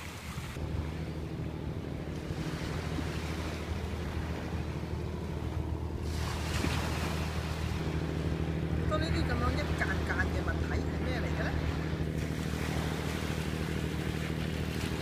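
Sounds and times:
low engine hum: 0:00.0 - 0:15.0
waves lapping over rocks: 0:06.0 - 0:07.9, 0:09.0 - 0:15.0.

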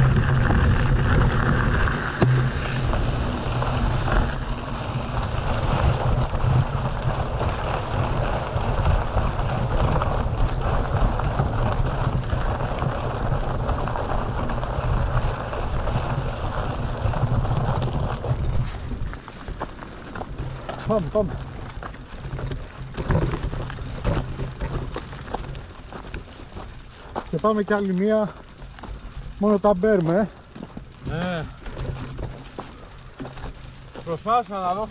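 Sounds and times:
wind buffeting microphone: 0:00.0 - 0:26.9
bike knocks and rattles: 0:00.0 - 0:34.9
tyres rolling on gravel: 0:00.0 - 0:34.9.

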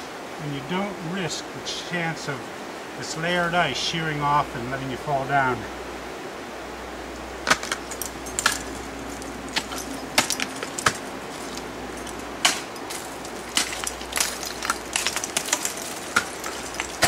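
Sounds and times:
carabiners clinking: 0:07.5 - 0:17.0.

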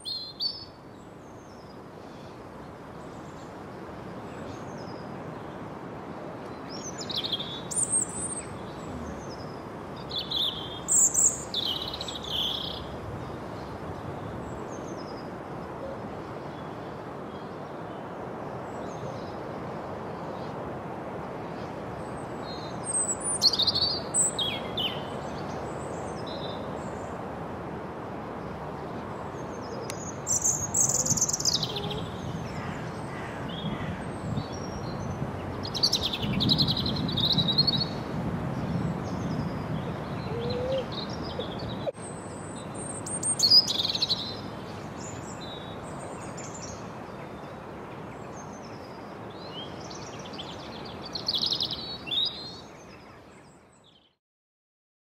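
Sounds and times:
steady background hiss: 0:00.0 - 0:53.9
robin singing: 0:06.7 - 0:12.9, 0:22.4 - 0:26.6, 0:29.8 - 0:38.0, 0:39.0 - 0:47.4, 0:48.3 - 0:54.0.

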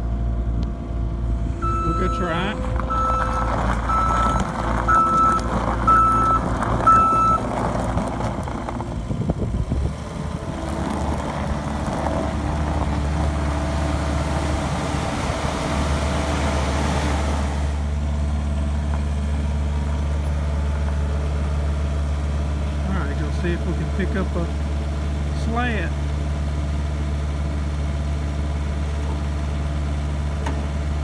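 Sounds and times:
skid steer engine running: 0:00.0 - 0:31.0
backup alarm beeps: 0:01.6 - 0:07.4.

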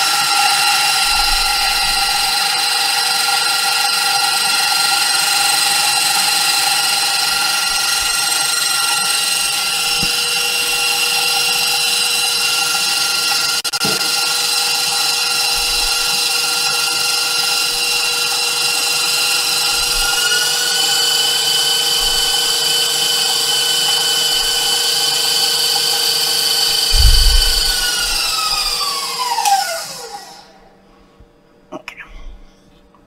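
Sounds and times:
stand mixer motor whining: 0:00.0 - 0:30.6
dull low thump: 0:26.9 - 0:28.8.

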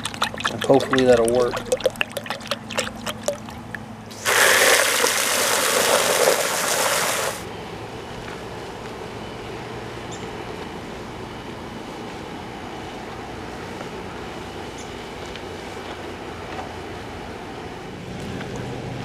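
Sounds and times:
water gushing into plastic bucket: 0:00.0 - 0:07.4.

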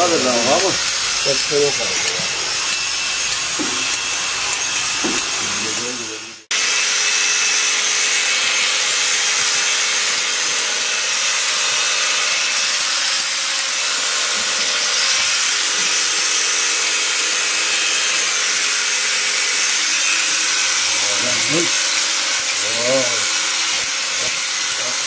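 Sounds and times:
electric clipper buzzing: 0:00.0 - 0:25.0.

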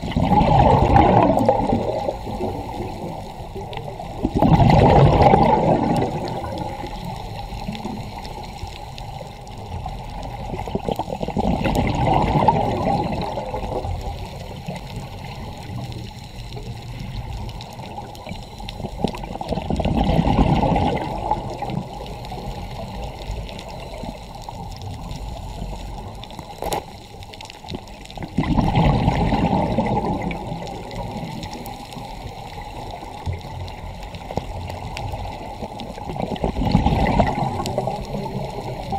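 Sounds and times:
underwater exhaled bubbles: 0:00.0 - 0:38.9
regulator hiss: 0:01.7 - 0:04.4, 0:06.0 - 0:11.4, 0:13.0 - 0:19.5, 0:21.3 - 0:28.3.

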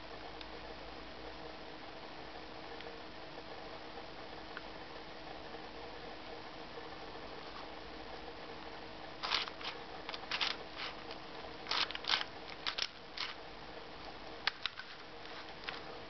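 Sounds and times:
faint steady hum: 0:00.0 - 0:16.0
plastic puzzle clicking: 0:11.7 - 0:13.4.

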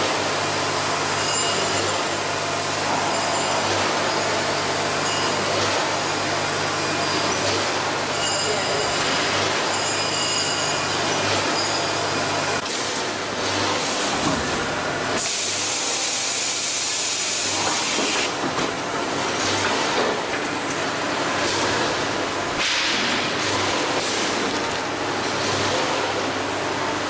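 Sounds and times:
packaging machine hissing: 0:15.2 - 0:18.4.

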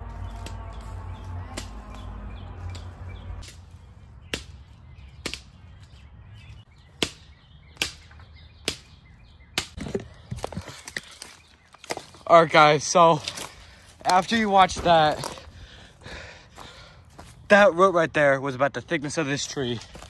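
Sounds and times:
tool chopping tree root: 0:00.2 - 0:05.6, 0:06.9 - 0:08.9.

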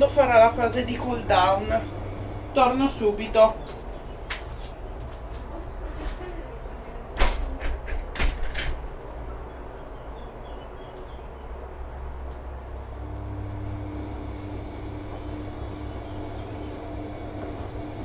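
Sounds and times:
drum motor humming: 0:00.0 - 0:04.3, 0:12.8 - 0:18.0
washing machine drum rumbling: 0:14.0 - 0:18.0.

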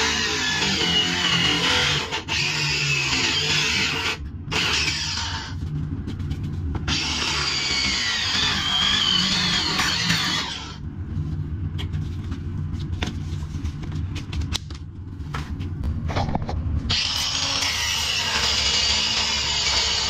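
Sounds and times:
power tool cutting with a squeal: 0:16.9 - 0:20.0.

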